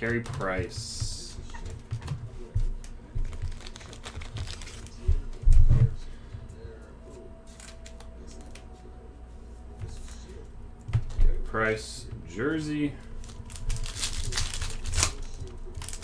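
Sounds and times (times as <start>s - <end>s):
plastic rustling: 0.0s - 6.2s, 12.9s - 16.0s.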